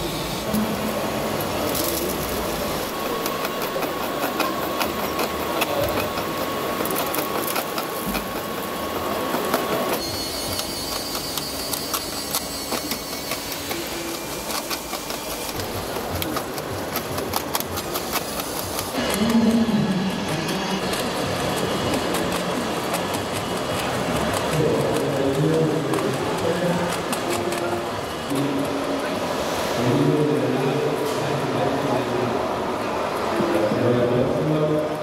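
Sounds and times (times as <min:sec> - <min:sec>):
toy truck electric motor whining: 0:01.6 - 0:28.2.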